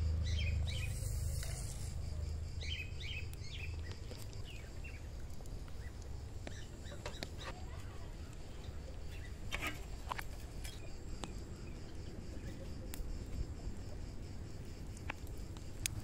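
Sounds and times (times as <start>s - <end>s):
low steady rumble: 0.0s - 6.9s
wood fire crackling and popping: 0.4s - 16.0s.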